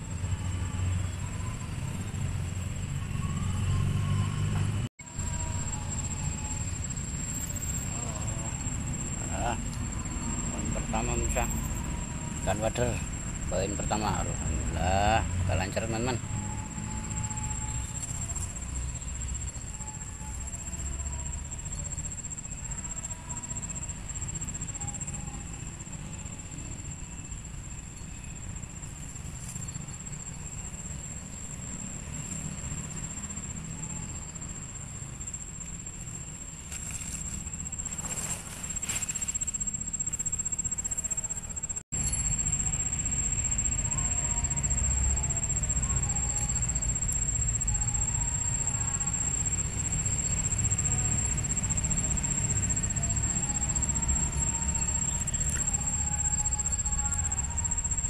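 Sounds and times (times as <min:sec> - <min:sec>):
high-pitched whine: 0:00.0 - 0:58.0.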